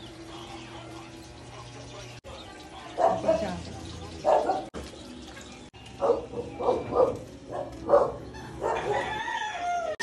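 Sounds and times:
dog barking: 3.0 - 3.6, 4.2 - 4.7, 6.0 - 9.0.

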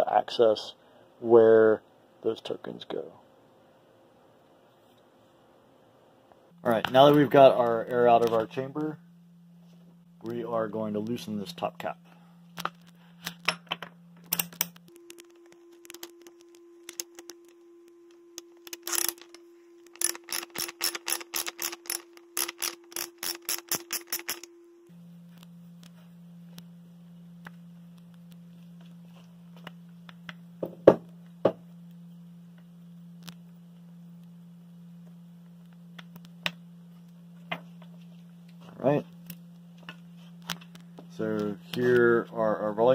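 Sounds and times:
steady low hum: 0.0 - 42.9
socket ratchet clicking: 18.6 - 24.5.

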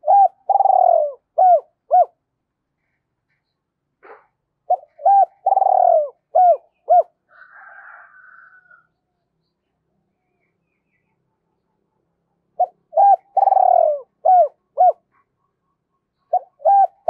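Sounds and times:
dove cooing: 0.0 - 2.2, 4.1 - 8.2, 12.6 - 15.2, 16.3 - 17.0.

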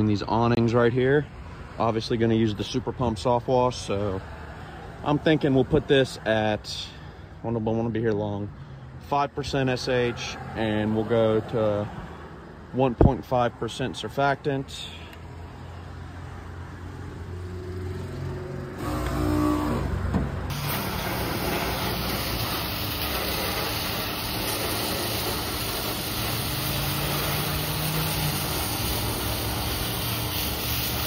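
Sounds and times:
engine running: 18.8 - 31.0
loud rushing hiss: 20.5 - 31.0.

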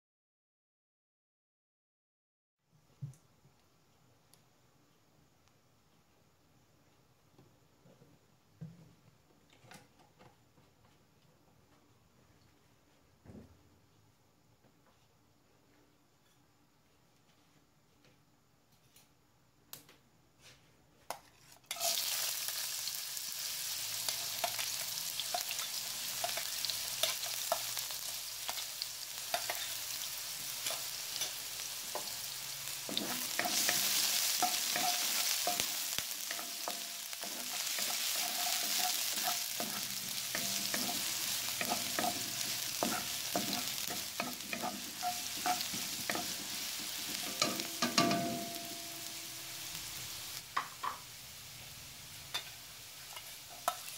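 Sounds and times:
celery sizzling in hot oil: 21.2 - 53.9
wooden spatula scraping wok: 23.4 - 50.4.

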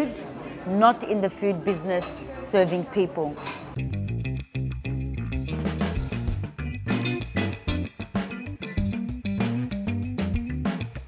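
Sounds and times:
guitar music with bass and beat: 3.8 - 11.0.

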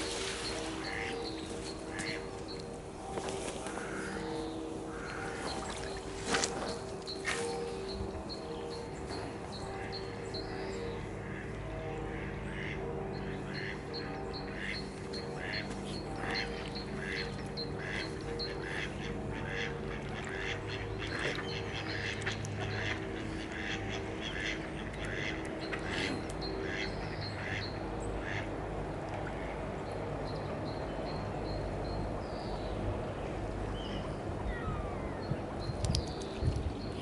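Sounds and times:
ducks quacking: 0.0 - 28.5
helicopter drone overhead: 0.0 - 37.0.

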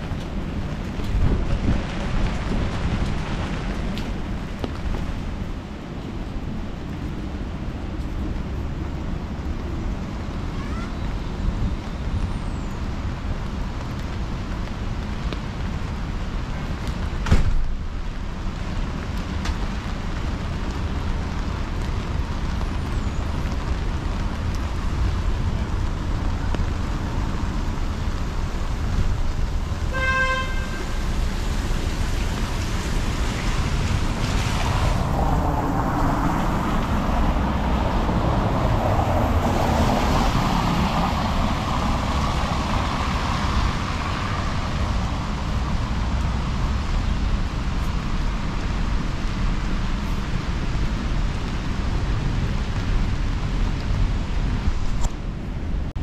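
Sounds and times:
city traffic rumble: 0.0 - 56.0
car horn toot: 29.9 - 30.9.

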